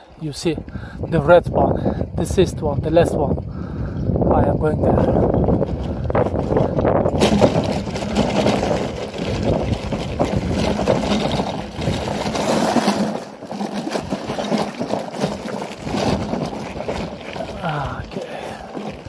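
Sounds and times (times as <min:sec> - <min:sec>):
bicycle tyres crunching on gravel: 0:05.4 - 0:19.0
wire basket rattling: 0:05.5 - 0:19.0.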